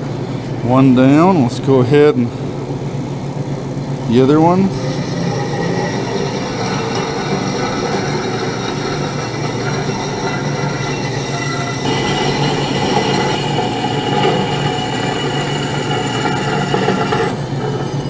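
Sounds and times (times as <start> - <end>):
steady high ringing tone: 2.3 - 18.0
bandsaw cutting metal: 4.1 - 18.0.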